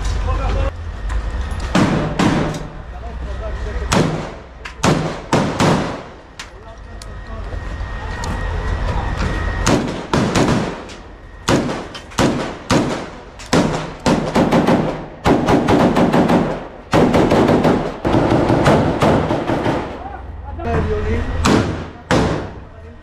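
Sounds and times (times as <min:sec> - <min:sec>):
gunfire: 0:01.7 - 0:02.7, 0:03.9 - 0:06.2, 0:09.6 - 0:20.0, 0:21.4 - 0:22.6.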